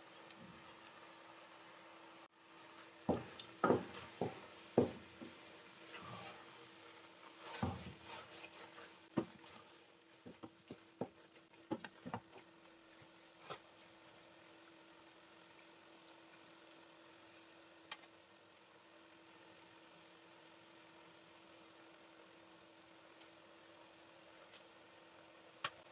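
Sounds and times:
wooden spatula scraping metal pot: 3.1 - 6.6, 7.2 - 9.6.

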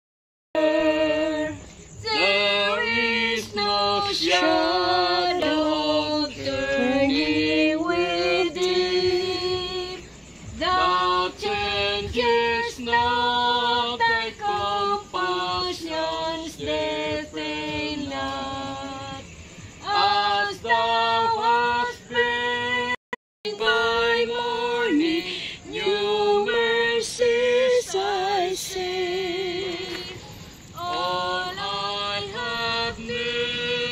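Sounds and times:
woman singing slow melody: 0.6 - 33.9.

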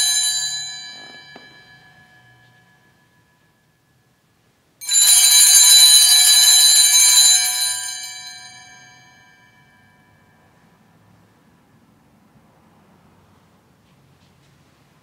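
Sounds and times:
small altar bells ringing: 0.0 - 11.6.

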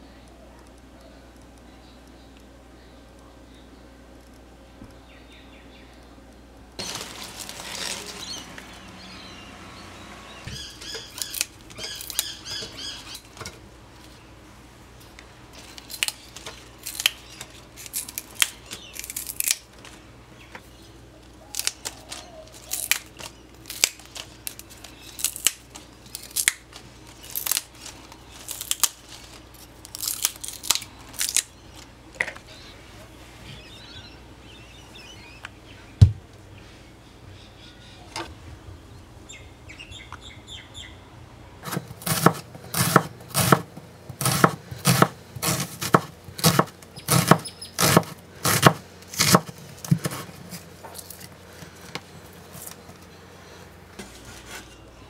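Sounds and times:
leaves rustling: 6.8 - 14.3, 20.9 - 33.5
stems snapping by hand: 10.8 - 12.4, 15.1 - 20.0, 21.2 - 32.4.

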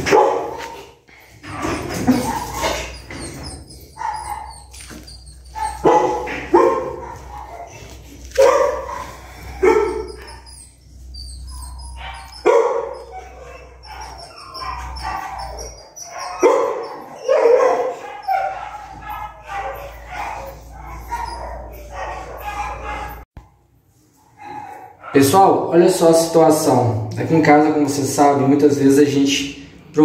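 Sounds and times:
puppy barking and yipping: 0.0 - 0.9, 1.5 - 23.3, 24.3 - 25.2.

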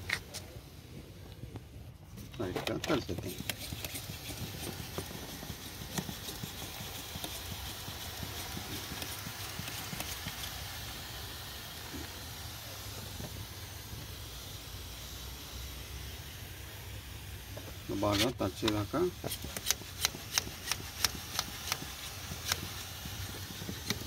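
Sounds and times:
spray hissing: 2.8 - 24.0
sprayer trigger clicks: 18.6 - 22.8.

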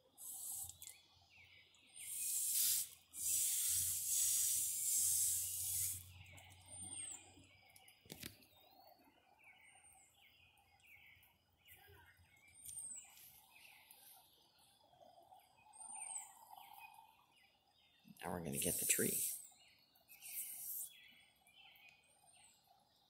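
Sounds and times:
garden hose spraying water: 0.0 - 0.9, 1.9 - 6.2, 18.4 - 19.5, 20.2 - 21.0
birds chirping: 0.0 - 23.0.

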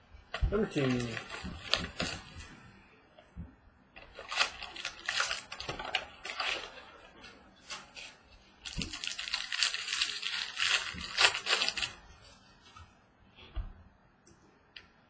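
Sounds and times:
card pack wrapper crinkling: 4.0 - 6.9, 8.6 - 12.0
wrapper ripping: 4.1 - 7.0, 8.6 - 12.0.

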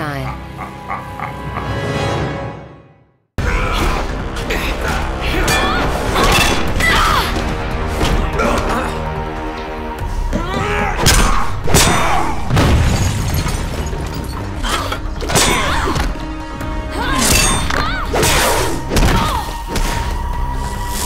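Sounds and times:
dramatic orchestral score: 0.0 - 12.7, 14.4 - 21.0.

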